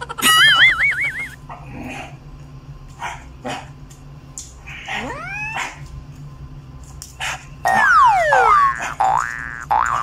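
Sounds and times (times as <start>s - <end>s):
steady low hum: 0.0s - 10.0s
short rising whine: 7.7s - 8.9s.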